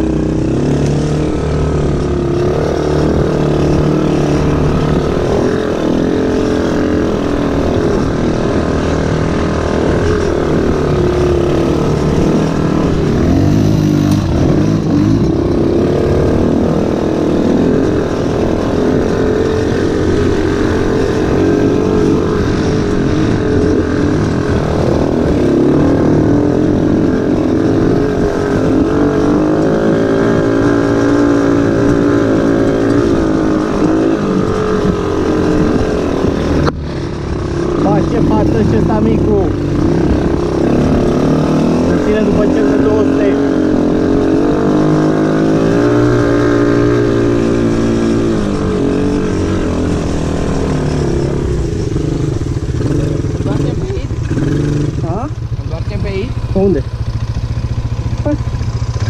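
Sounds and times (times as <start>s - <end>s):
atv engines revving: 0.0s - 59.0s.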